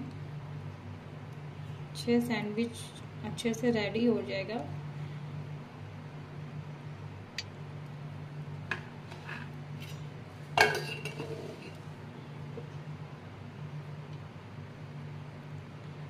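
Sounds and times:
low steady hum: 0:00.0 - 0:16.0
spoon clinking on steel plates: 0:10.6 - 0:11.4.

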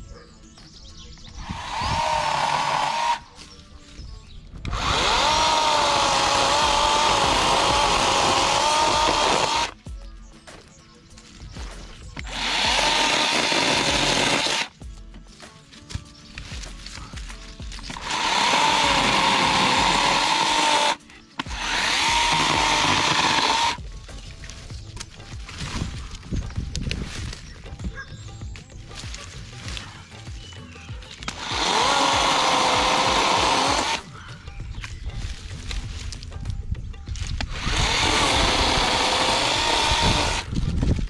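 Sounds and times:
cordless chainsaw whining: 0:01.4 - 0:03.5, 0:04.6 - 0:09.8, 0:12.2 - 0:14.7, 0:17.8 - 0:23.8, 0:31.1 - 0:34.1, 0:37.4 - 0:40.6.

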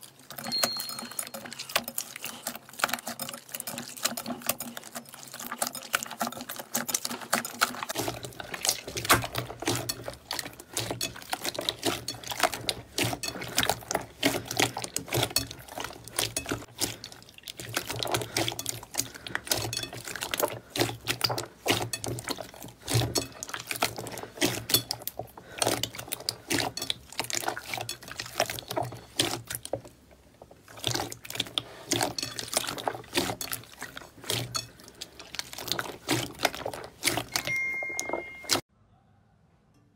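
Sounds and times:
slime squelching and popping: 0:00.0 - 0:38.6.

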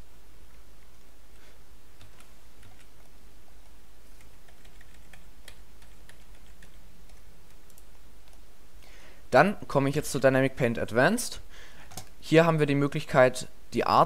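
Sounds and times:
keyboard keys clicking: 0:02.0 - 0:03.1, 0:04.1 - 0:08.4.

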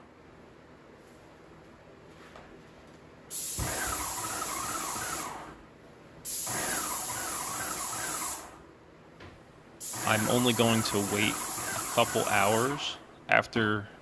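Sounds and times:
paint sprayer hissing: 0:03.3 - 0:05.6, 0:06.2 - 0:08.6, 0:09.8 - 0:12.9.

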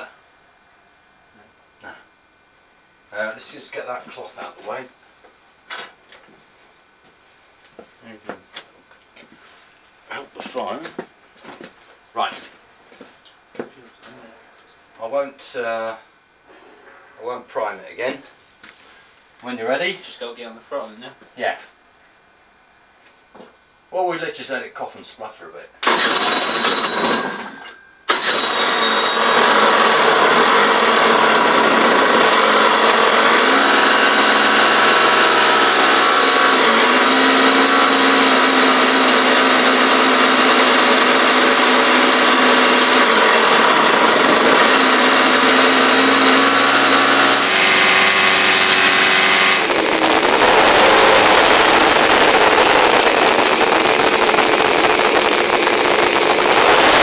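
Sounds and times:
starter engine: 0:25.8 - 0:27.5, 0:28.1 - 0:57.0
motorcycle engine running loudly: 0:28.2 - 0:57.0.

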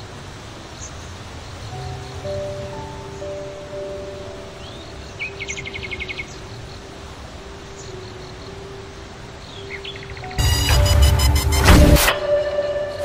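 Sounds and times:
outdoor hiss: 0:00.0 - 0:13.0
small bird chirping trill: 0:01.8 - 0:06.9.

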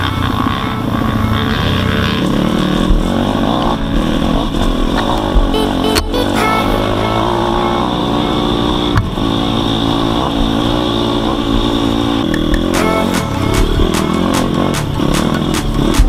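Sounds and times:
dirt bike engine revving: 0:00.0 - 0:16.0
bike knocking and clattering: 0:10.4 - 0:16.0.

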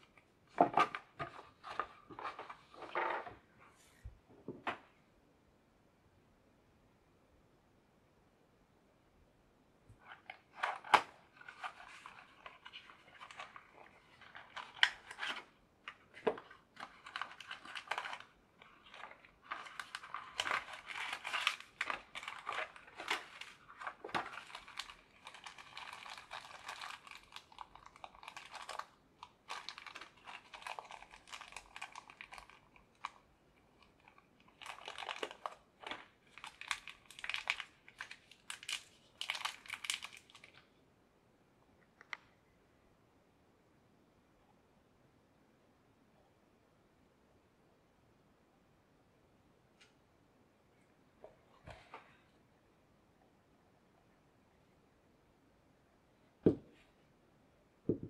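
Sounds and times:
plastic packaging crinkling: 0:10.0 - 0:40.7.

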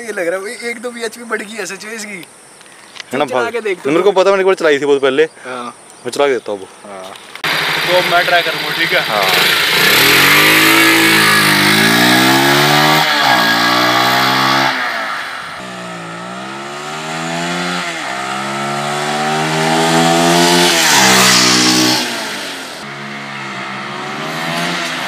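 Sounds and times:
motorcycle engine accelerating: 0:07.4 - 0:25.0.

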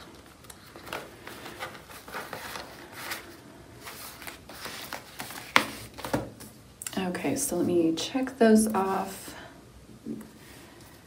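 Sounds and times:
paper bills and plastic rustling: 0:00.0 - 0:06.6.

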